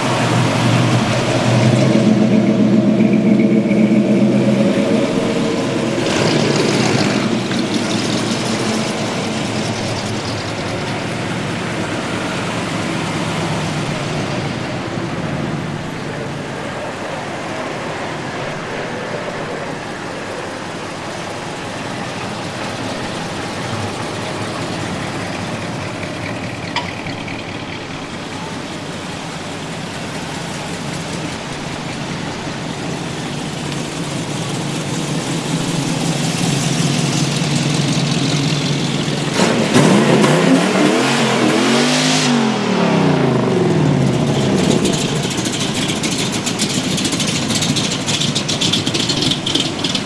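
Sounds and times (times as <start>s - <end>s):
engine revving: 0.0s - 14.9s, 29.6s - 50.0s
pulsing exhaust rumble: 0.0s - 41.8s, 42.4s - 50.0s
cars driving slowly past: 0.0s - 50.0s.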